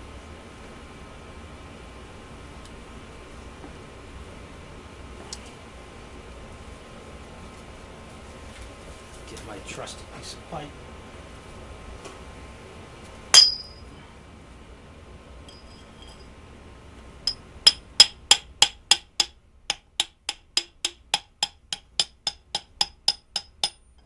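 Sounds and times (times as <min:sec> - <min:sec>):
sharp metallic clink: 0:13.4 - 0:13.9
hammer tapping on metal pipe: 0:17.3 - 0:23.9.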